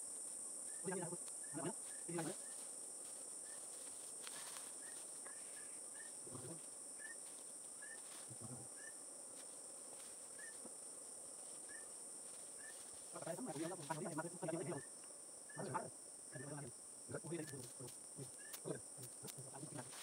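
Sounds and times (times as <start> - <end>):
high-pitched insect chorus: 0.0 - 20.0
low voice murmurs: 6.2 - 6.6, 8.3 - 8.7.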